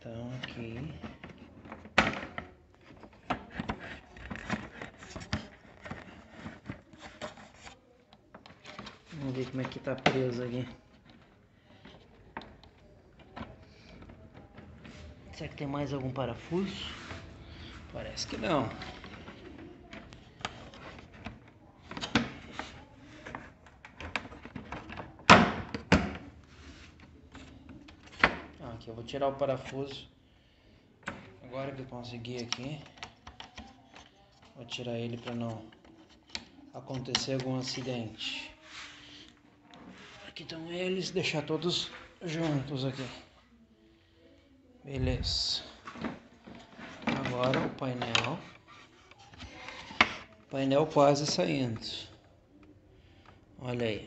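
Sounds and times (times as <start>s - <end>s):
plastic parts clicking and scraping: 0.2s - 30.0s, 31.0s - 43.2s, 44.9s - 53.4s
plastic panels clicking and knocking: 0.4s - 15.7s, 18.0s - 26.3s, 27.3s - 28.6s.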